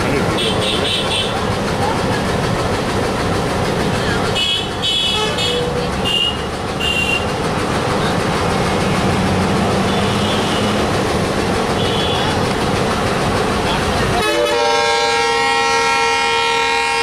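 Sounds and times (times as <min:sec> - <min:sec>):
diesel locomotive engine rumbling: 0:00.0 - 0:17.0
high-pitched horn toots: 0:14.2 - 0:17.0.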